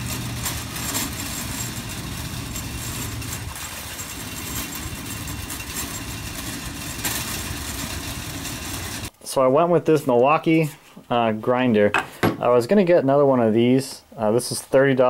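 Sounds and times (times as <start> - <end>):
shopping cart rattling on asphalt: 0.0 - 9.1.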